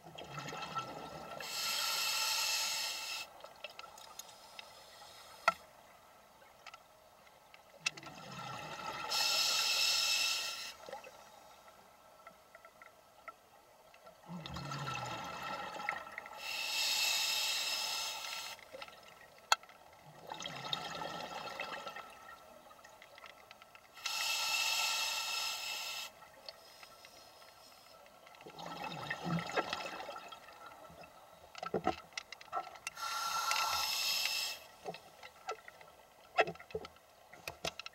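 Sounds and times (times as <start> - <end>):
hissing regulator breaths: 1.4 - 3.3, 4.2 - 5.6, 9.1 - 10.8, 16.4 - 18.6, 24.0 - 28.0, 33.0 - 34.8.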